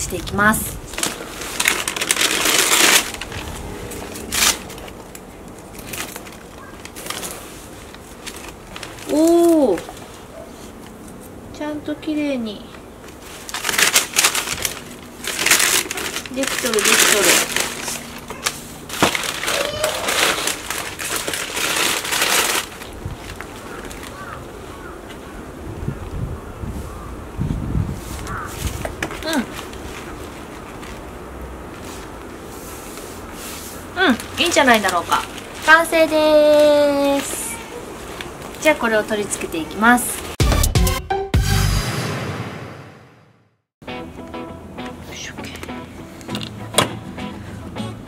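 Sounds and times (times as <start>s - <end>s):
paper rustling: 0.2s - 11.2s, 13.0s - 24.9s, 28.1s - 40.4s
tape tearing off: 1.0s - 9.1s, 13.4s - 23.0s.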